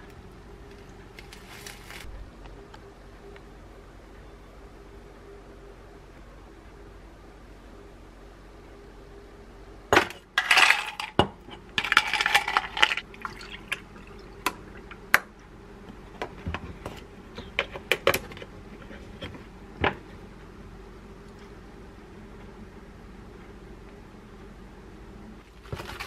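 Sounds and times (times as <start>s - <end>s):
milk pouring into glass: 13.0s - 14.5s.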